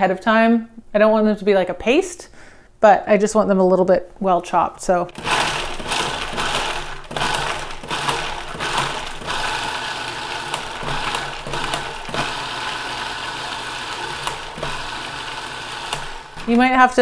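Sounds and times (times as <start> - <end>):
blade chopping food: 5.1 - 16.6
food processor motor humming: 5.1 - 17.0.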